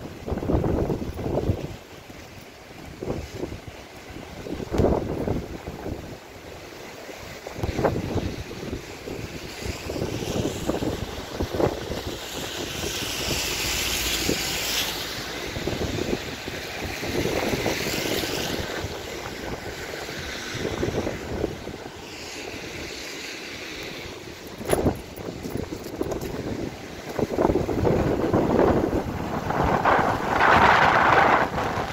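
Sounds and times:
wind buffeting microphone: 0.0s - 6.6s, 7.3s - 31.9s
rushing floodwater: 0.0s - 31.9s
high hiss: 7.8s - 25.3s.

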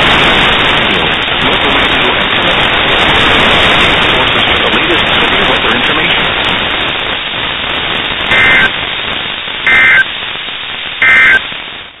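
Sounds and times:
radio static hiss: 0.0s - 12.0s
two-tone digital data bursts: 8.3s - 8.8s, 9.6s - 10.2s, 11.0s - 11.5s.

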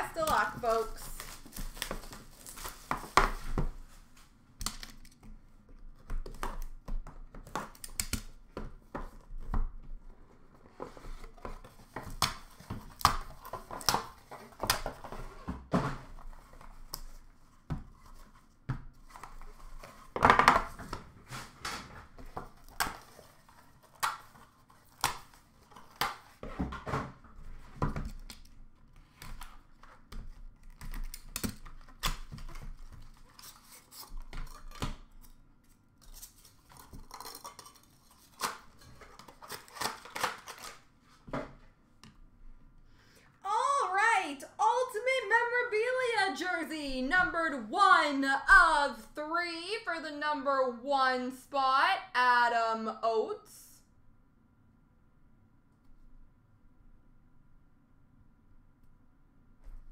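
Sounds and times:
cardboard packaging handling: 0.2s - 4.4s, 8.4s - 41.3s
plastic wrap tearing and crinkling: 0.7s - 3.4s, 36.0s - 40.9s.

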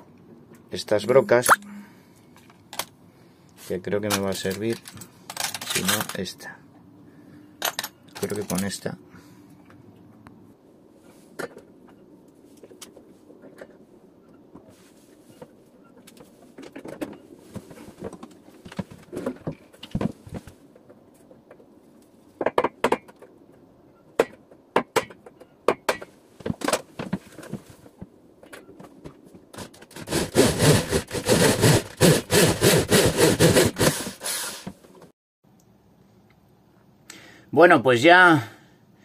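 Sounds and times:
electric drill boring into metal: 30.0s - 34.7s.

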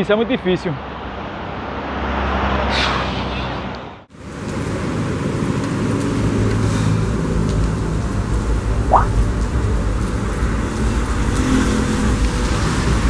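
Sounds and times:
car tyres hissing on wet road: 4.2s - 13.0s.

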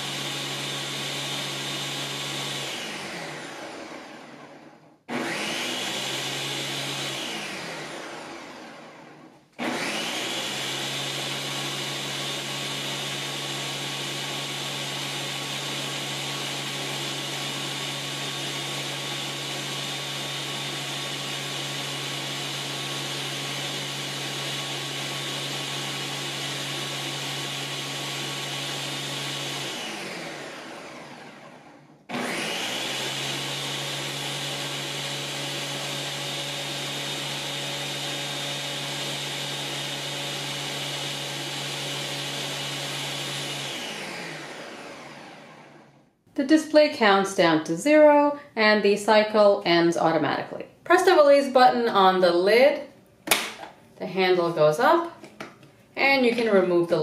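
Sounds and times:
blender motor running: 0.0s - 46.1s.

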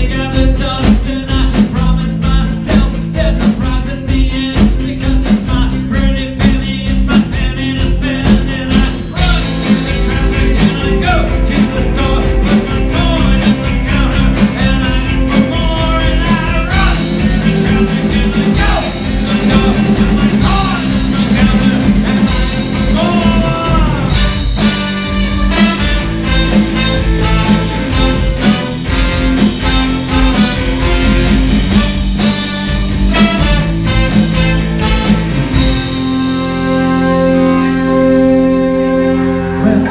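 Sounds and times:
drum beat: 0.0s - 36.6s
electric guitars: 0.0s - 39.9s
horn section: 8.2s - 39.9s.

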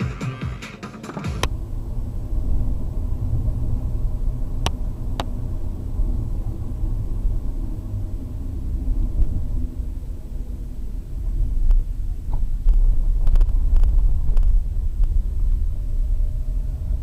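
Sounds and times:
music with a beat: 0.0s - 1.5s
car road and engine rumble: 1.0s - 17.0s.

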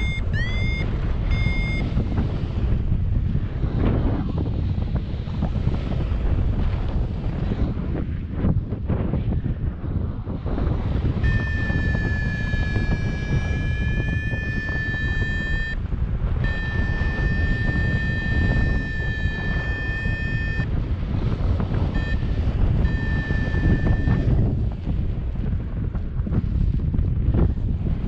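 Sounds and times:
variometer steady high tone: 0.0s - 2.6s, 11.1s - 24.5s
wind rushing over microphone: 0.0s - 28.0s.

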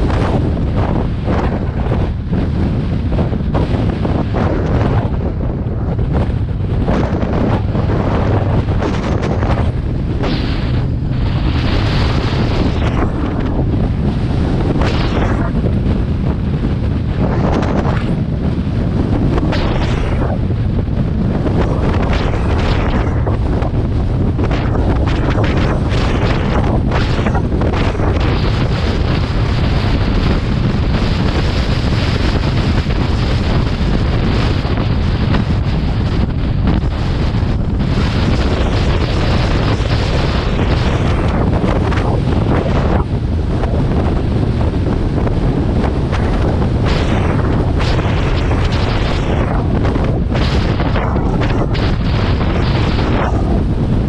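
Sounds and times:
motorcycle rumble: 0.0s - 54.0s
wind buffeting microphone: 0.0s - 54.0s
short crackles: 46.1s - 53.6s.

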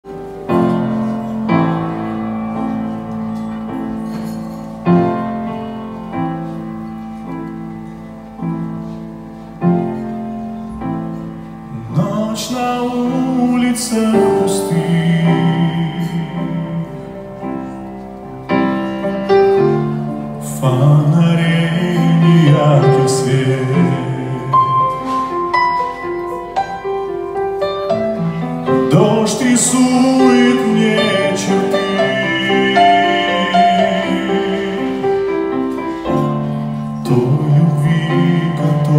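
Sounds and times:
grand piano ballad: 0.0s - 38.9s
man singing with vibrato: 11.7s - 17.8s, 20.2s - 25.3s, 28.7s - 38.9s.

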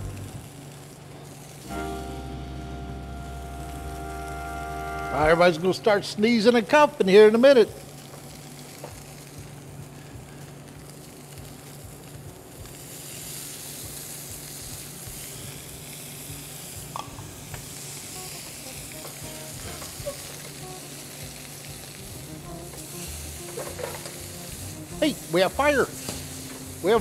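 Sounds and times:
fish sizzling in a skillet: 0.0s - 2.0s, 7.5s - 27.0s.

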